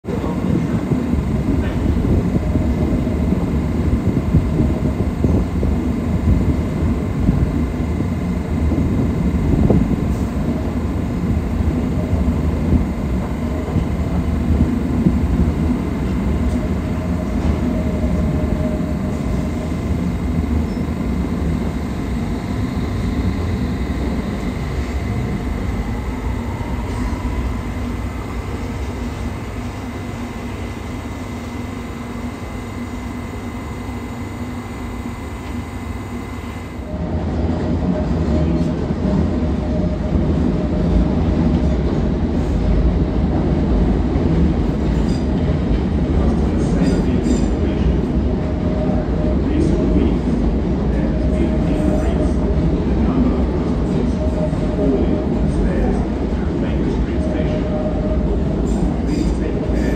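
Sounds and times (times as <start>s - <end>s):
train wheels rumbling on rail: 0.0s - 59.9s
faint rising whine: 12.5s - 36.9s.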